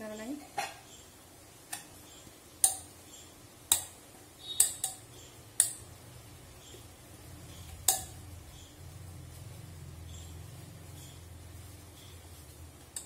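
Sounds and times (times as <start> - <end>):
metal pot tapping ticks: 1.7 - 1.9, 2.6 - 2.9, 3.7 - 5.8, 7.7 - 8.2.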